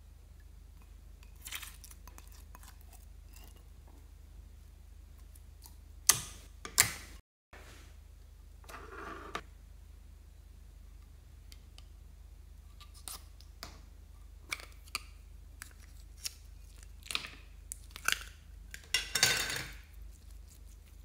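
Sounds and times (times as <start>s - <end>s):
slime squelching: 1.2s - 3.7s.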